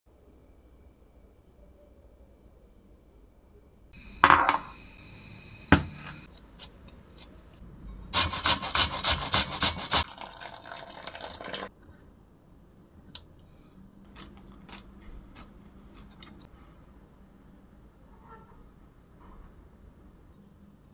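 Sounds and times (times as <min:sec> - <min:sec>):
box grater rasping: 0:08.2 - 0:10.0.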